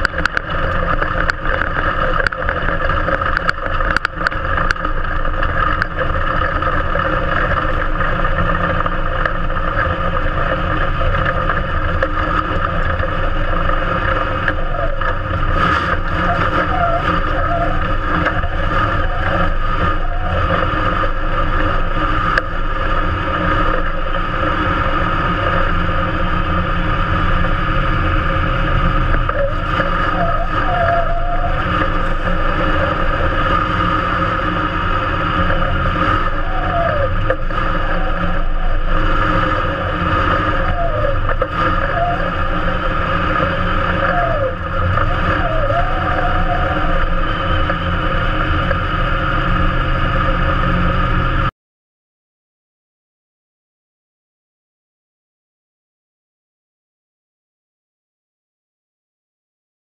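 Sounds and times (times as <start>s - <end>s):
race car engine running: 0.0s - 51.5s.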